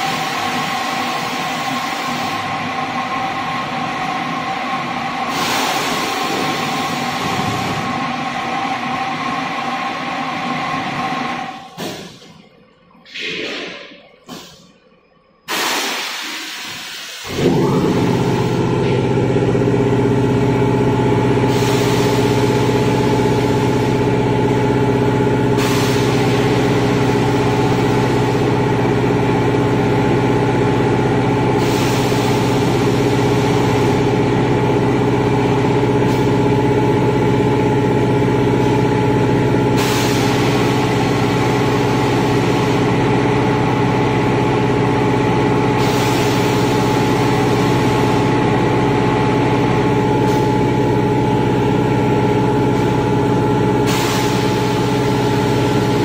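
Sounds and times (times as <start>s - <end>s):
hiss of filling machine: 0.0s - 2.5s, 5.2s - 8.4s, 11.6s - 12.4s, 13.0s - 14.8s, 15.4s - 18.9s, 21.2s - 24.0s, 25.4s - 28.8s, 29.5s - 35.2s, 35.9s - 36.9s, 38.5s - 43.2s, 45.4s - 50.8s, 53.7s - 56.0s
filling machine pumps humming: 0.0s - 14.8s, 15.5s - 56.0s.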